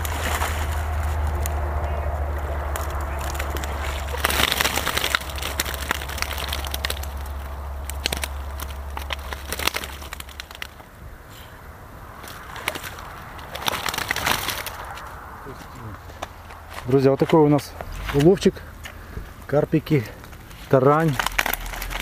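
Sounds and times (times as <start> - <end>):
water splashing from net: 0.0 - 1.4, 2.6 - 10.8, 12.5 - 14.9
wet net rustling: 0.0 - 11.4, 12.1 - 15.3, 20.5 - 22.0.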